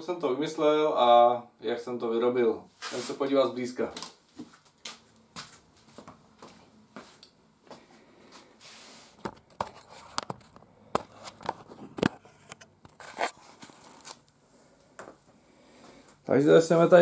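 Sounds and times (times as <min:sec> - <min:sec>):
rustling scuff: 0:02.7 - 0:03.4, 0:04.0 - 0:10.1
footsteps: 0:03.9 - 0:14.1.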